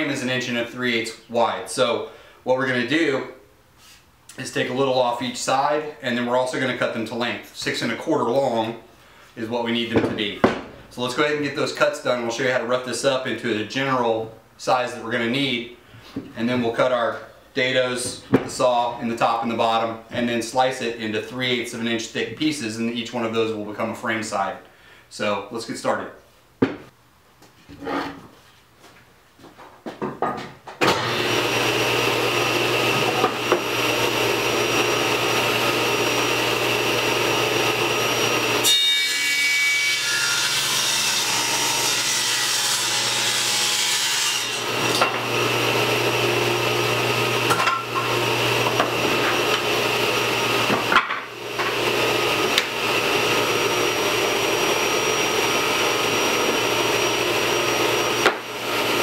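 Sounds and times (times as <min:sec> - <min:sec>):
table saw ripping wood: 0:30.8 - 0:59.0.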